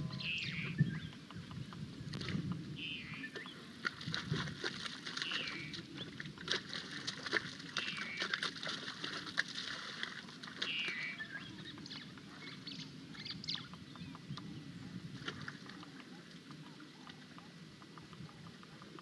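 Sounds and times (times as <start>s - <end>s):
water drips and slaps: 3.3s - 12.7s, 15.2s - 19.0s
elephant feet splashing in mud: 3.8s - 11.2s.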